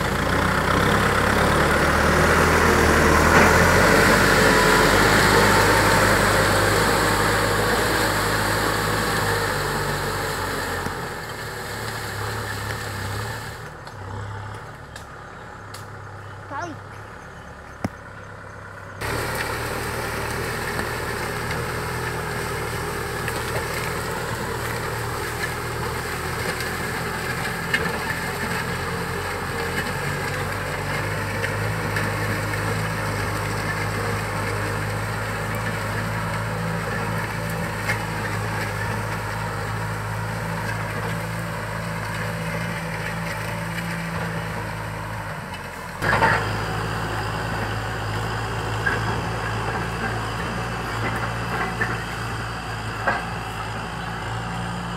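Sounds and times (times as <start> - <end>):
tractor diesel engine under load: 0.0 - 54.9.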